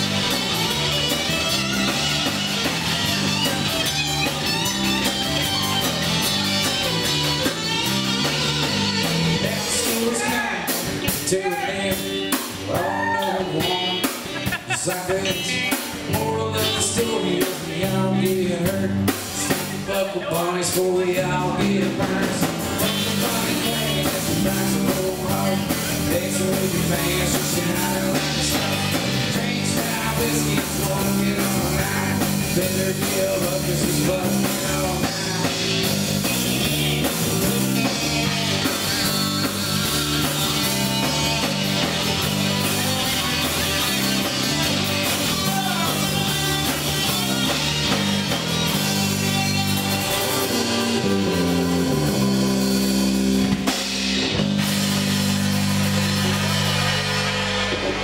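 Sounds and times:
bass guitar line: 0:00.0 - 0:58.0
drum kit: 0:00.0 - 0:58.0
electric guitars: 0:00.0 - 0:58.0.

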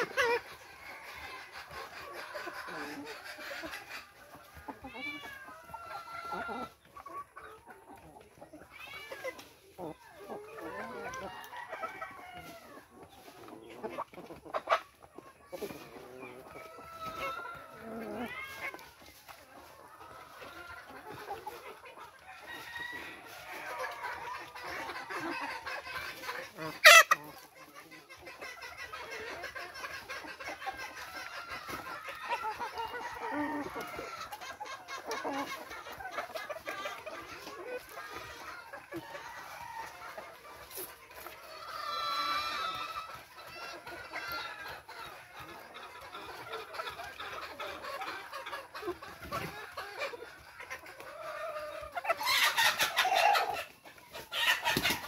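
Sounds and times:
chickens clucking: 0:00.0 - 0:55.0.

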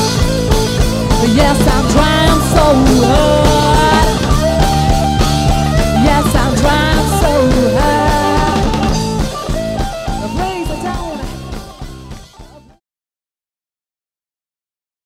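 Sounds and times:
live band playing: 0:00.0 - 0:12.8
woman singing: 0:01.1 - 0:04.9, 0:05.6 - 0:09.0, 0:10.2 - 0:11.6.

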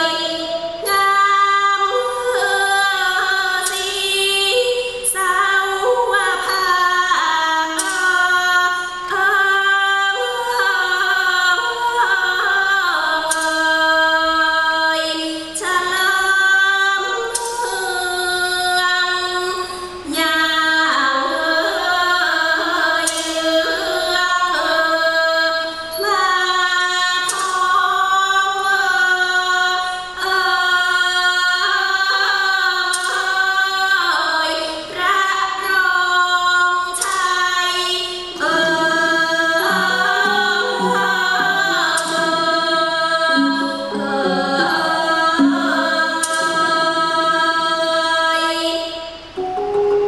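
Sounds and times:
woman singing: 0:00.0 - 0:50.0
low accompanying notes: 0:38.4 - 0:47.2.

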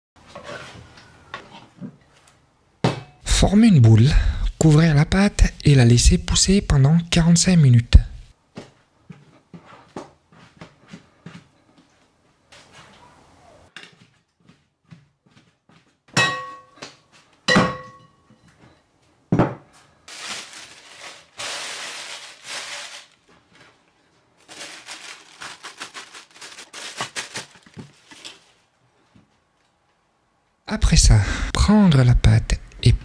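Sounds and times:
glass bowl clinking: 0:16.2 - 0:16.8, 0:17.5 - 0:18.2
plastic sheeting crinkling: 0:20.1 - 0:28.8.

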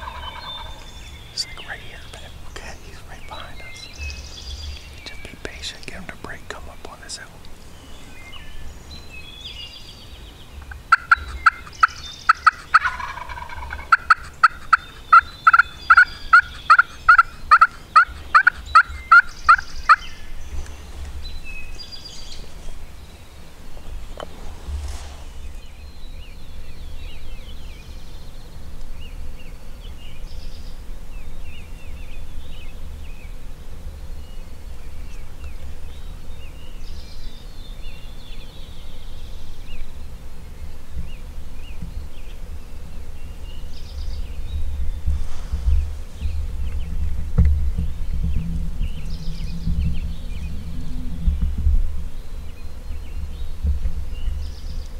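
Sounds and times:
turkey yelping: 0:00.0 - 0:00.8, 0:10.9 - 0:20.0
songbird chirps: 0:00.0 - 0:54.9.

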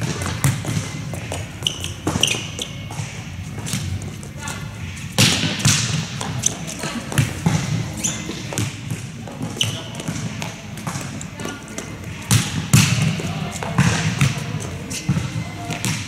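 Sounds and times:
ball hitting court floor: 0:00.0 - 0:04.0, 0:05.1 - 0:16.0.

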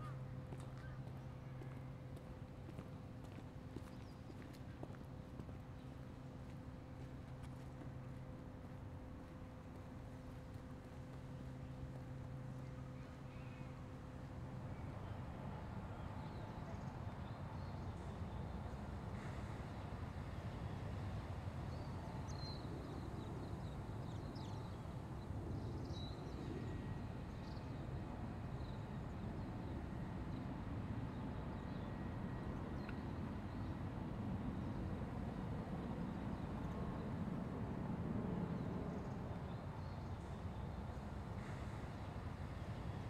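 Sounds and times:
faint bird chirps: 0:12.5 - 0:13.8.

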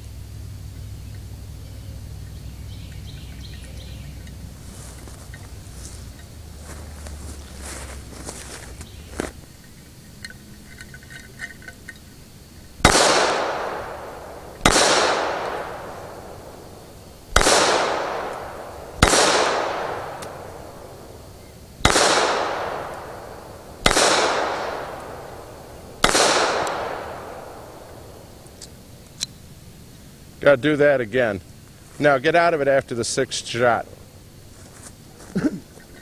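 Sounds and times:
pistol shots with echo: 0:12.8 - 0:16.7, 0:17.3 - 0:21.1, 0:21.8 - 0:28.3.

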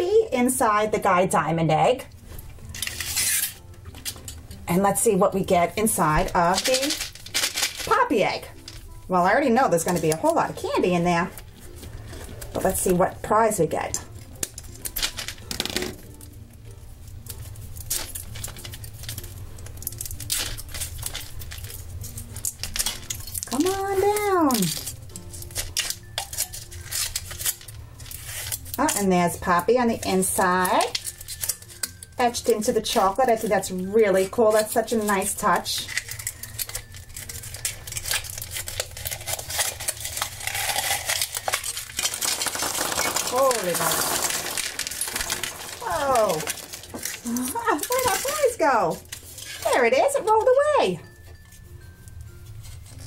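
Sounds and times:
foil wrapper crinkling and tearing: 0:02.2 - 0:50.4
chocolate shell cracking: 0:06.2 - 0:09.0, 0:13.9 - 0:29.1, 0:30.0 - 0:33.6, 0:34.2 - 0:49.8.

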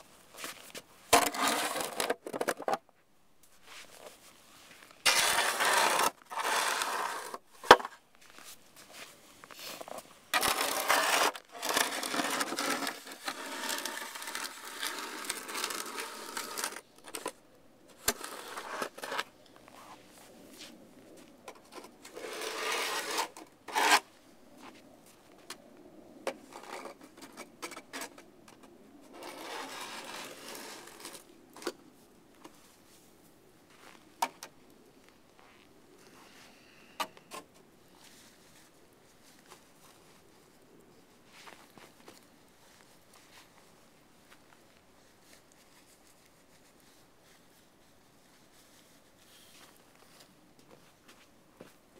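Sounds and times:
snow shovel scraping snow: 0:01.2 - 0:02.0, 0:04.7 - 0:07.4, 0:09.6 - 0:16.8, 0:18.0 - 0:20.0, 0:22.0 - 0:24.1, 0:29.2 - 0:31.2.

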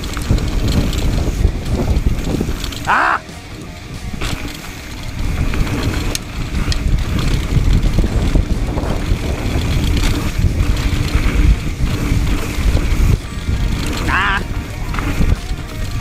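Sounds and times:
bike rattles and clicks: 0:00.0 - 0:16.0
bike tyres rumbling over rocky trail: 0:00.0 - 0:16.0
wind buffeting microphone: 0:00.0 - 0:16.0.

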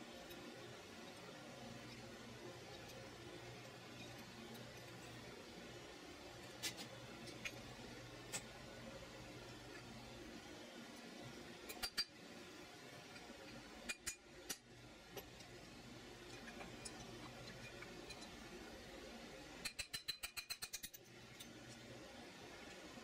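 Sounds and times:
metal tool clicks and taps: 0:19.6 - 0:21.0.

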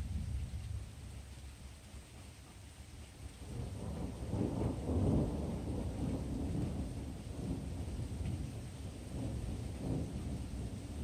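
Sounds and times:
rolling thunder: 0:03.4 - 0:11.0.

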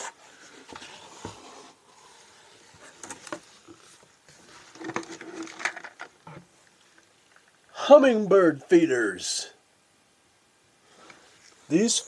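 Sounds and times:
cardboard rustling and scraping: 0:00.0 - 0:06.5.

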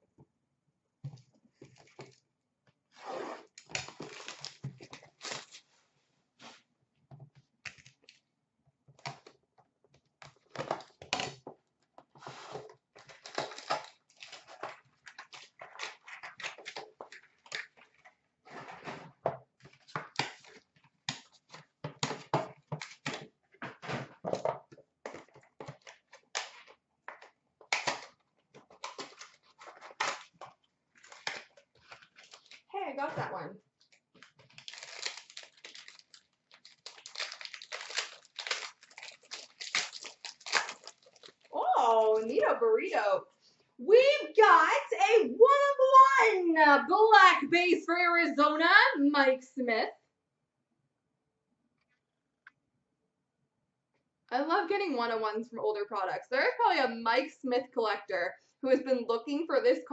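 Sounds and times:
cardboard tearing: 0:03.0 - 0:05.7, 0:12.3 - 0:18.0, 0:34.2 - 0:41.5
wrappers crinkling: 0:03.6 - 0:05.7, 0:28.7 - 0:32.7, 0:33.8 - 0:42.4.

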